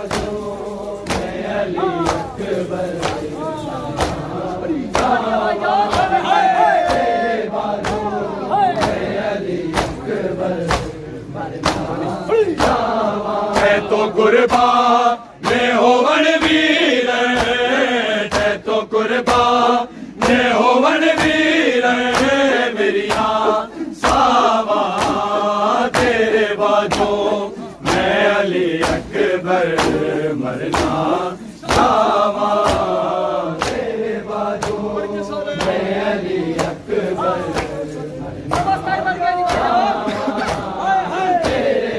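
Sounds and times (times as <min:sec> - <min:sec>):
hands beating chests: 0:00.0 - 0:11.0, 0:11.6 - 0:15.8, 0:20.2 - 0:33.9, 0:38.5 - 0:41.8
men chanting in unison: 0:00.0 - 0:41.9.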